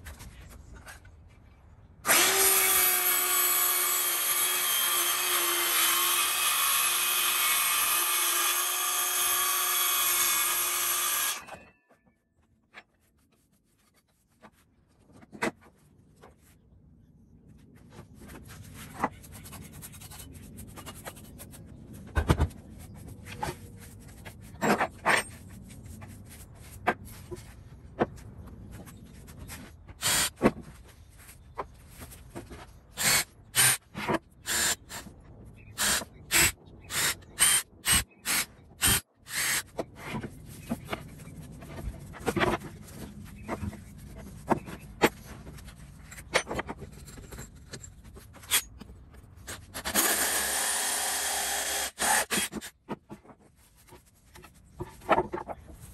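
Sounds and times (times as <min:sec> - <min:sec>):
drill boring holes in wood: 0:02.0 - 0:11.4, 0:30.0 - 0:30.4, 0:33.0 - 0:33.8, 0:34.5 - 0:35.0, 0:35.8 - 0:39.7, 0:49.8 - 0:52.6
hole saw cutting wood: 0:02.0 - 0:11.4, 0:33.0 - 0:33.8, 0:35.8 - 0:39.7, 0:49.8 - 0:52.7.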